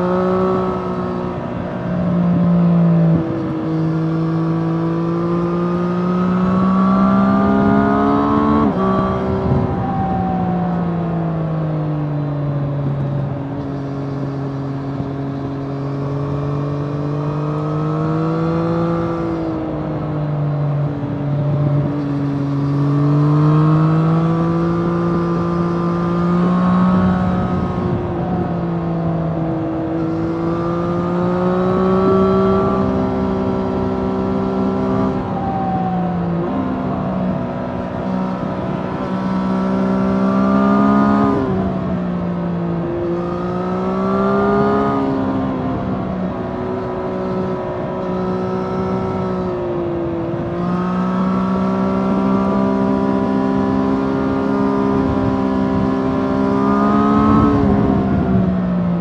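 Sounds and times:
motorcycle engine revving: 0.0 - 59.0
wind rush: 7.2 - 11.8, 20.7 - 51.4, 53.3 - 59.0.

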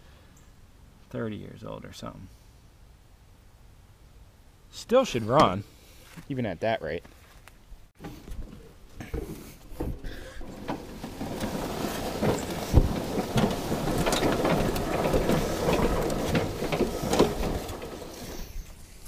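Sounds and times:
lawn mower being dragged: 8.0 - 19.0
plastic and metal parts knocking: 8.3 - 18.4.

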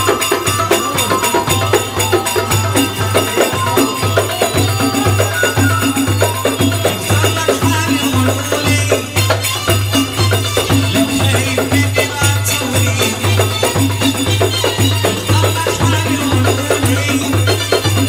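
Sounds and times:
sustained melody line: 0.0 - 7.2
frame drums in steady rhythm: 0.0 - 18.0.

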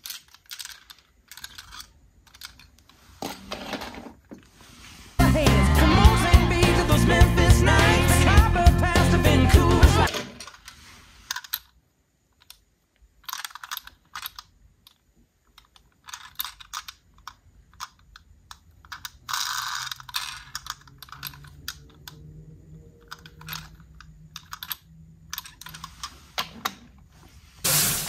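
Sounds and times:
toy truck clicking and knocking: 0.0 - 4.3, 10.1 - 22.3, 22.9 - 26.9
rubbing rustle: 4.4 - 5.2.

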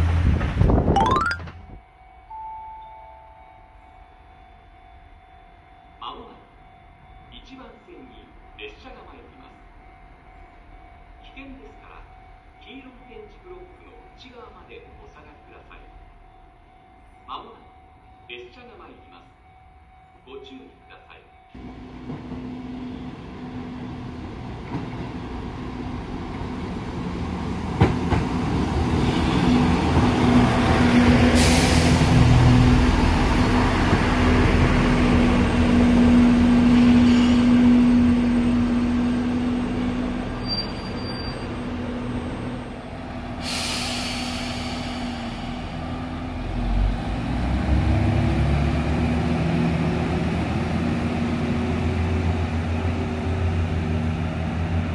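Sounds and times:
diesel railcar engine drone: 21.6 - 54.9.

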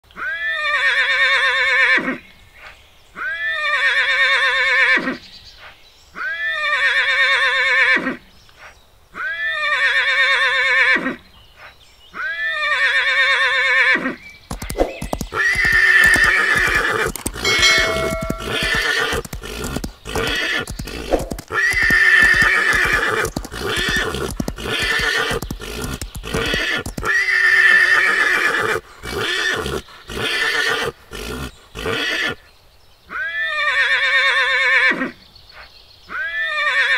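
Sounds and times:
horse neighing: 12.2 - 32.4
stallions whinnying and squealing: 12.2 - 32.4, 36.1 - 36.9
hooves knocking: 14.5 - 30.2.

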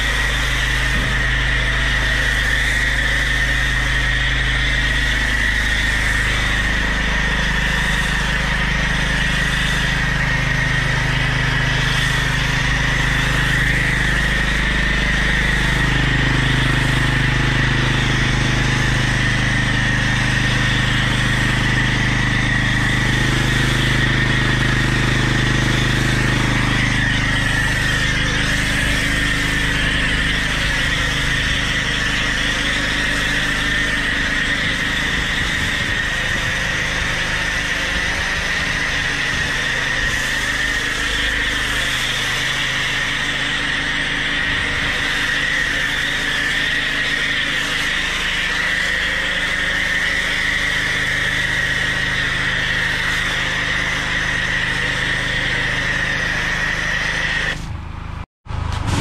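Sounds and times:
hiss of foam spray: 0.0 - 8.4, 11.8 - 17.2, 25.7 - 57.7
petrol generator running: 0.0 - 59.0
pressure washer humming: 0.0 - 59.0.

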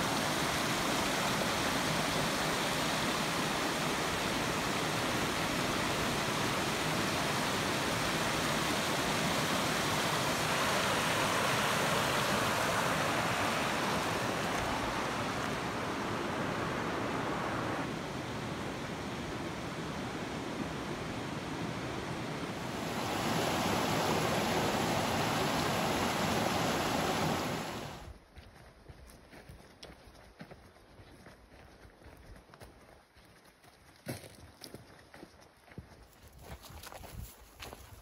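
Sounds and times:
creek rushing over boulders: 0.0 - 28.1.

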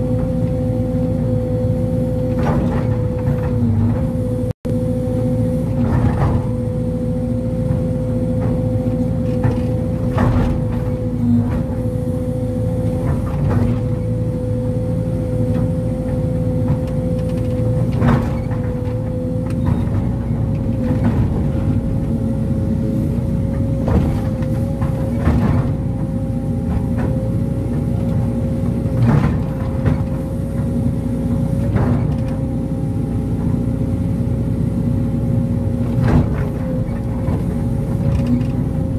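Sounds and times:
constant machine whine: 0.0 - 38.9
diesel engine running: 0.0 - 38.9
excavator bucket knocks and clunks: 2.2 - 4.2, 5.7 - 6.6, 7.6 - 11.9, 12.9 - 14.2, 15.5 - 22.4, 23.4 - 32.6, 35.8 - 38.9.

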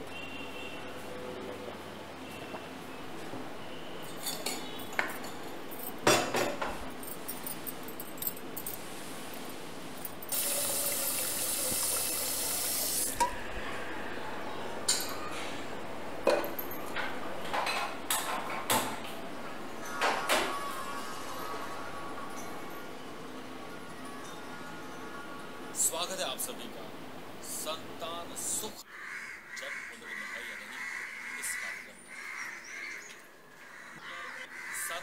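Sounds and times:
pots and utensils clinking: 4.1 - 6.8.

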